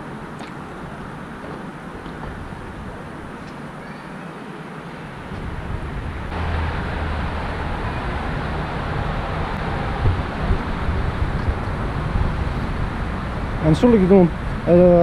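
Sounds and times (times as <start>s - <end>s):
city background noise: 0.0s - 15.0s
wind rumble: 5.1s - 15.0s.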